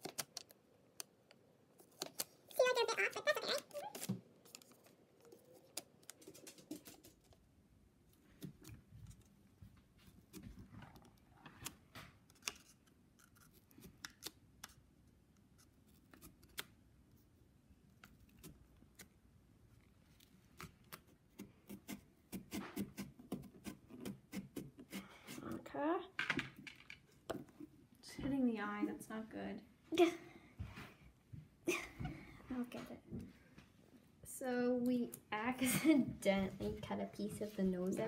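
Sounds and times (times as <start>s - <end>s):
paper handling: 1.8s - 7.4s.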